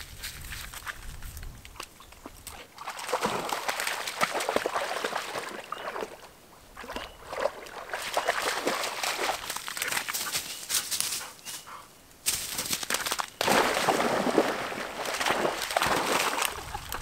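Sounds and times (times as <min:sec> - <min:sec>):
splashing in shallow water: 0:02.2 - 0:10.8, 0:12.4 - 0:17.0.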